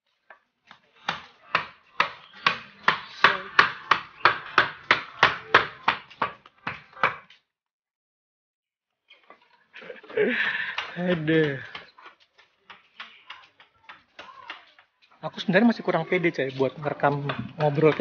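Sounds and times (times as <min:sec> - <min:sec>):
people speaking: 0:09.8 - 0:11.8, 0:13.0 - 0:18.0.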